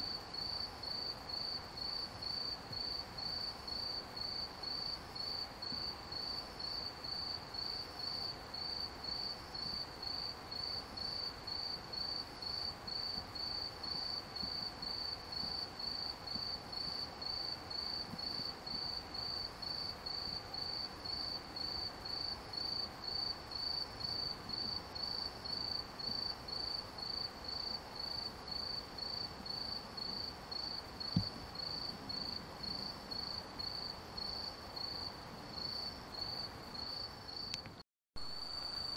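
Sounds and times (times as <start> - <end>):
cricket chirping: 0.1 - 38.9
thump: 31.1 - 31.4.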